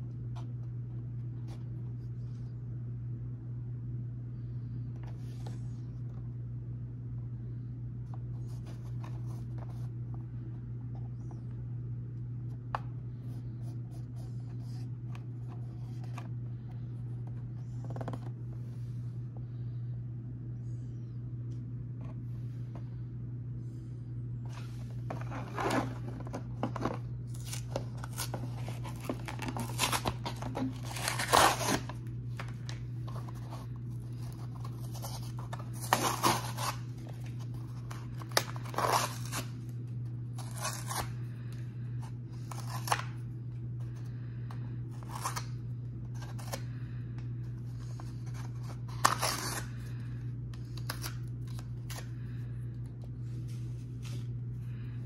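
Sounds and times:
cardboard tearing and crackling: 25.1 - 39.7, 40.3 - 41.1, 42.4 - 43.1, 47.9 - 49.8.

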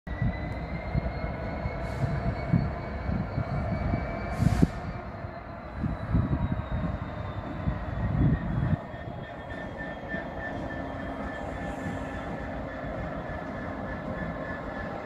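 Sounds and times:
diesel locomotive rumble: 0.1 - 15.0
steady high whine: 0.1 - 15.0.

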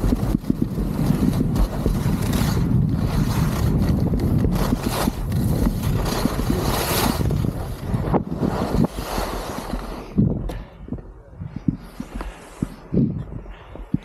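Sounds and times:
skis sliding on snow: 0.0 - 10.3
wind buffeting microphone: 0.0 - 14.0.

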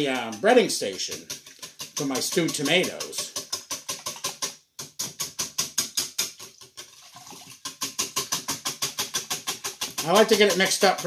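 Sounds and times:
wire whisk clicking against bowl: 0.0 - 4.5, 7.6 - 11.0.

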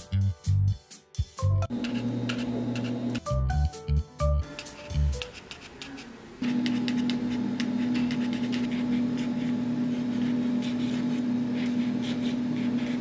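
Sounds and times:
steady low hum: 6.4 - 13.0.

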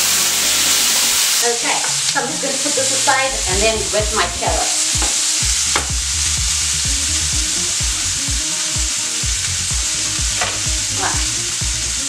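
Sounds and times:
food sizzling in a frying pan: 0.0 - 12.0.

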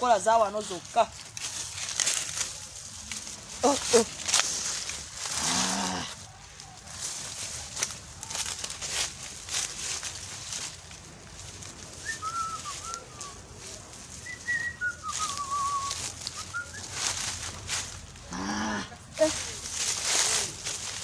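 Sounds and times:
leaves and stems rustling: 0.0 - 21.0
bird whistling: 12.0 - 13.4, 14.2 - 17.0.

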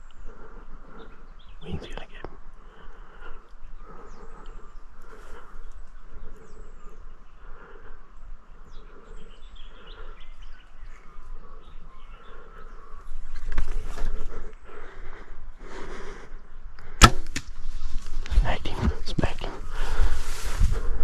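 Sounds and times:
low wind rumble: 0.0 - 21.0
small birds chirping: 0.0 - 21.0.

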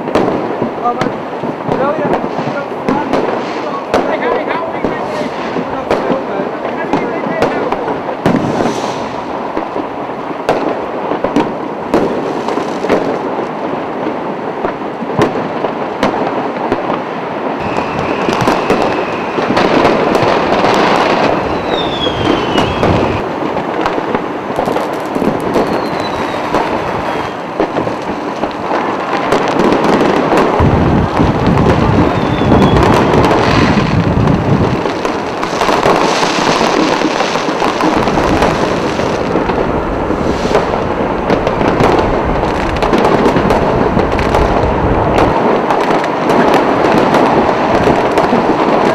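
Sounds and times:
deep firework booms: 0.0 - 48.9
firecrackers crackling and popping: 0.0 - 48.9
falling firework whistle: 8.2 - 9.3, 17.6 - 23.4, 24.6 - 27.8, 31.1 - 34.1, 35.6 - 43.0.

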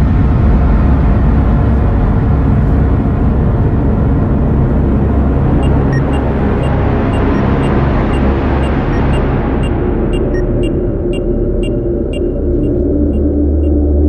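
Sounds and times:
loud low rumble: 0.0 - 14.0
short electronic beeps: 5.6 - 13.8.

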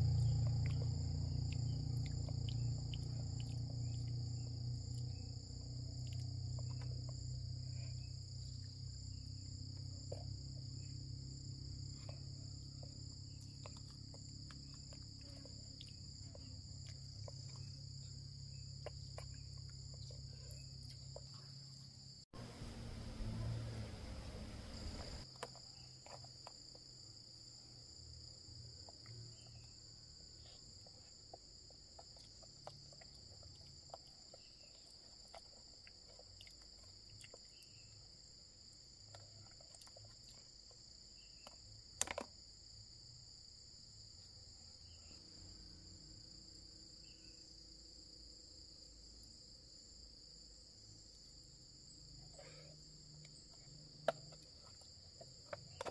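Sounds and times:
insects chirring: 0.0 - 55.9.

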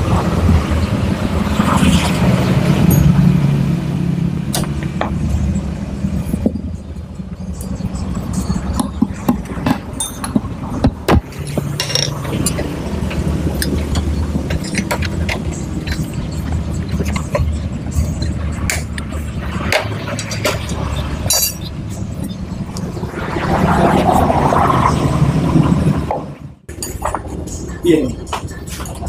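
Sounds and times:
metal rod clicking on engine parts: 11.1 - 16.2, 18.1 - 21.7.

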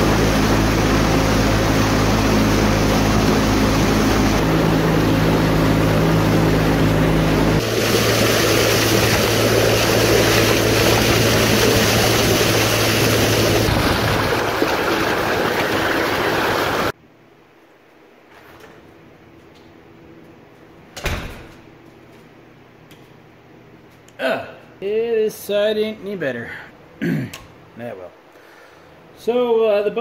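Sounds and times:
outboard motor humming: 0.0 - 16.9
water rushing and splashing: 0.0 - 17.0.

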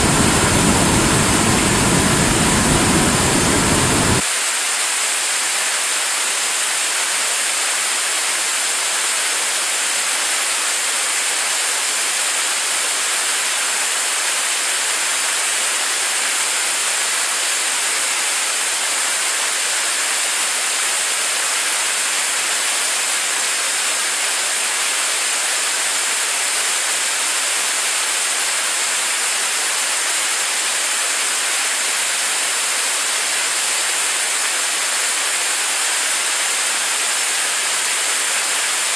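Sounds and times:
rocket engine roaring: 0.0 - 4.2.

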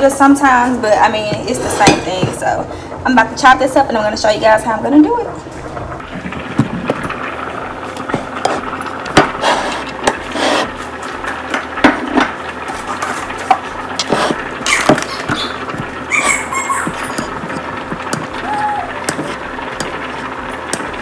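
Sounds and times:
utensils and pot clanking: 0.9 - 2.6, 8.0 - 21.0.

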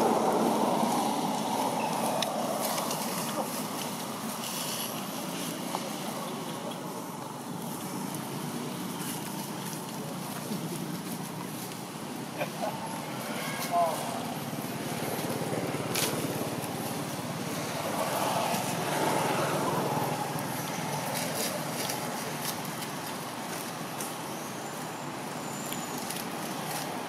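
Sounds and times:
vehicle passing: 0.0 - 6.2, 12.4 - 22.5
road traffic: 0.0 - 27.0.

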